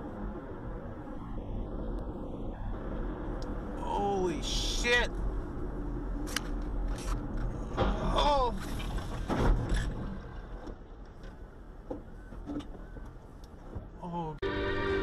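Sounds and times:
road noise: 0.0 - 15.0
vehicle crash: 7.0 - 10.6.

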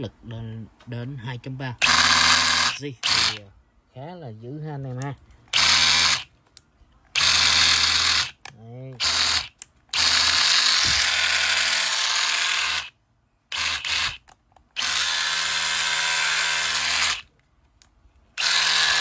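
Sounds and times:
rotary hammer running: 1.8 - 3.4, 9.0 - 12.9, 13.5 - 14.2, 14.8 - 17.2, 18.4 - 19.0.

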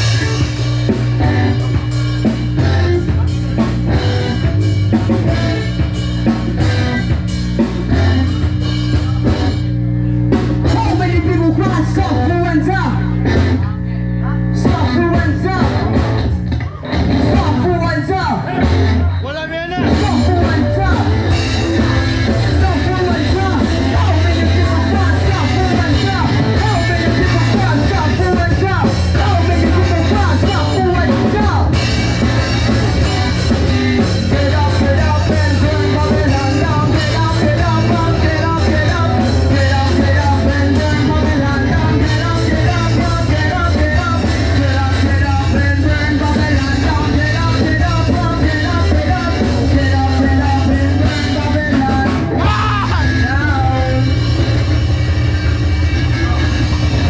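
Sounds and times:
electric bass: 0.0 - 57.0
live rock band playing: 0.0 - 57.0
singer's vocals: 10.1 - 15.9, 16.6 - 54.6.

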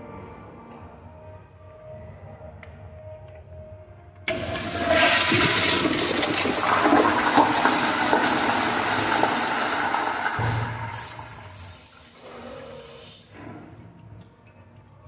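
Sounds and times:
toilet flushing: 4.3 - 13.6.

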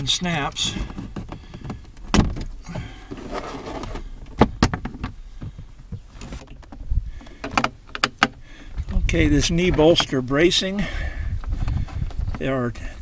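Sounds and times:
plastic trim rattling and scraping: 3.1 - 10.4, 11.3 - 13.0.

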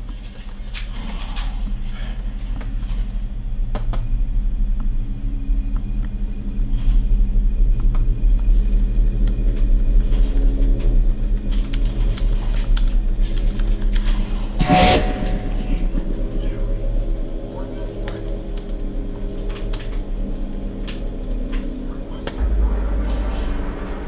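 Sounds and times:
low rumbling drone: 1.0 - 24.0
scattered clicks and ticks: 7.8 - 14.6, 17.0 - 22.4.

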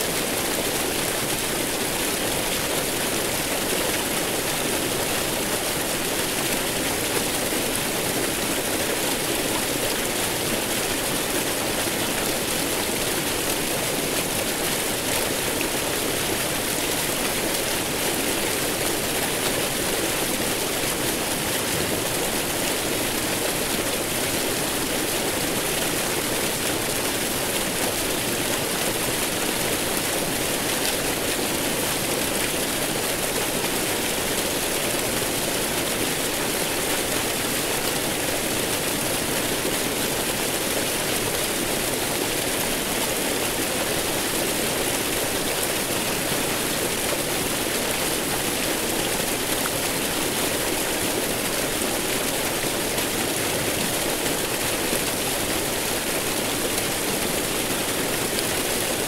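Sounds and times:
waterfall roaring: 0.0 - 59.0.

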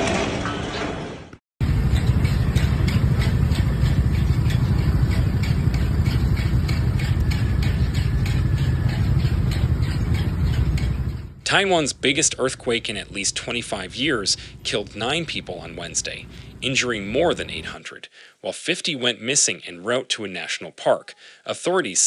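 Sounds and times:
low rumble: 1.6 - 17.8.

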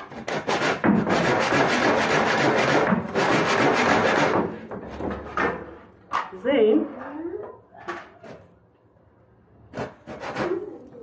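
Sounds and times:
hand saw cutting wood: 0.0 - 4.6, 9.7 - 10.8.

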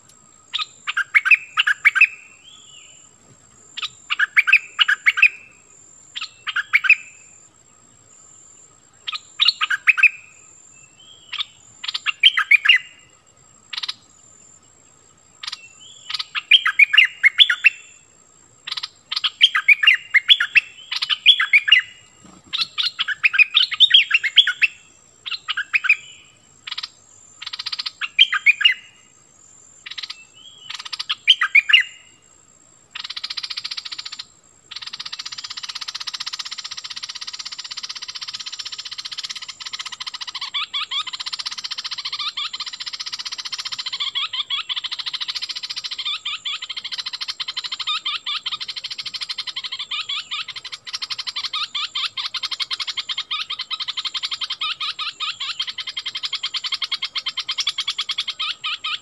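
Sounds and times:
bird singing warbled phrases: 0.0 - 3.1, 3.8 - 29.1, 29.7 - 32.2, 32.9 - 59.0.

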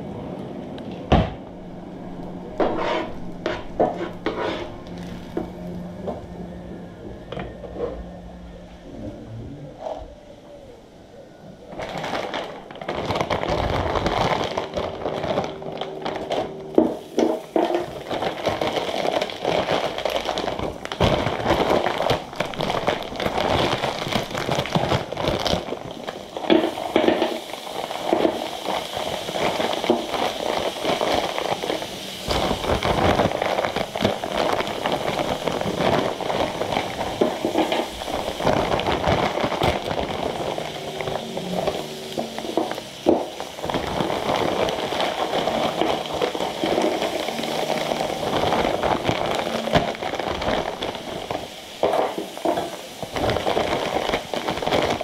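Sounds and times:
food sizzling on a griddle: 15.2 - 55.0.

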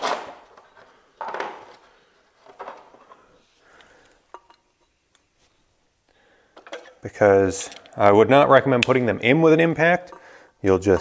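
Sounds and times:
metallic clinks and scrapes: 4.3 - 5.6.

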